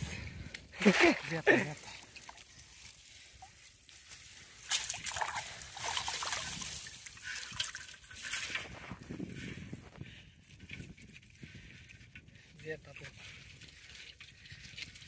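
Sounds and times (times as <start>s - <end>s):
water sloshing: 0.8s - 8.8s
water trickling and dripping: 1.5s - 8.4s.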